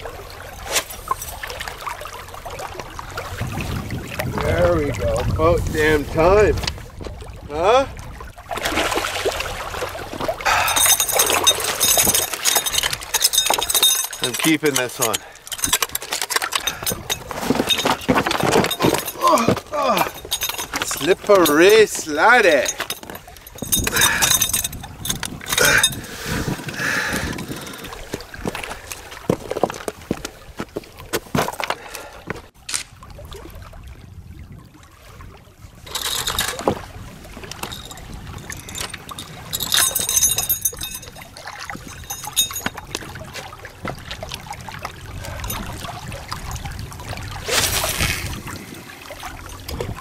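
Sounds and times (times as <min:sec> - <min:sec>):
small waves lapping on rocks: 0:00.0 - 0:34.1, 0:34.9 - 0:50.0
handling clicks and knocks on rocks: 0:10.5 - 0:26.1, 0:27.1 - 0:32.9, 0:35.9 - 0:41.2, 0:41.8 - 0:44.2.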